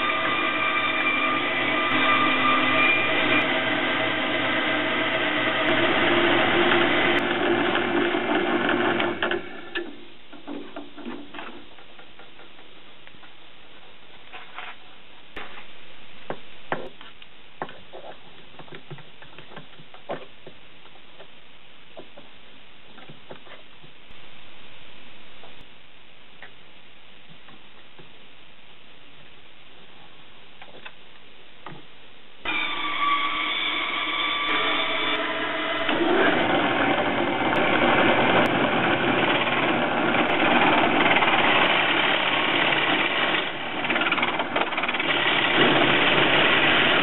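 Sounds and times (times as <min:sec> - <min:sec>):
bandsaw whine: 0:00.0 - 0:09.7, 0:32.4 - 0:47.0.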